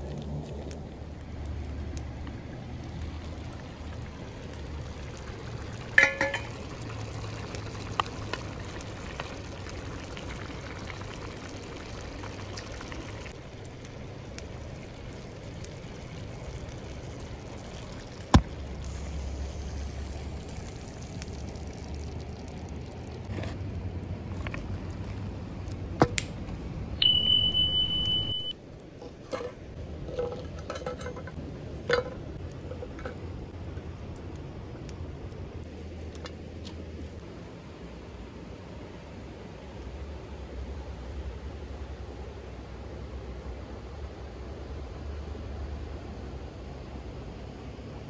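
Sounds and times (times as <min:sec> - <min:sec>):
water trickling and bubbling: 0:00.0 - 0:26.0
metal pot lid clanking: 0:06.0 - 0:06.6, 0:29.3 - 0:33.2.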